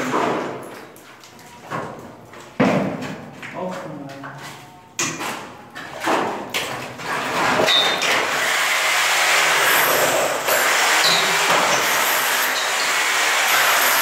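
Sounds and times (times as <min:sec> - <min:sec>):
power tool on concrete: 0:07.8 - 0:14.0.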